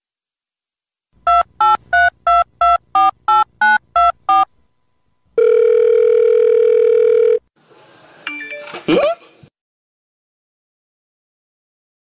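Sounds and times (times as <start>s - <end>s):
telephone ringing tone: 5.4s - 7.5s.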